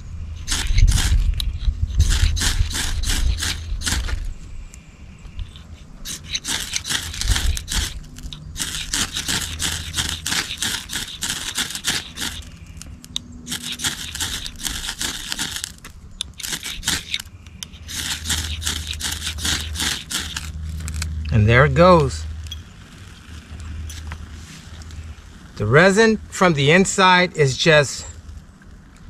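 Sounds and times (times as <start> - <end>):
quick scraping strokes: 0.4 - 4.3, 5.5 - 22.0.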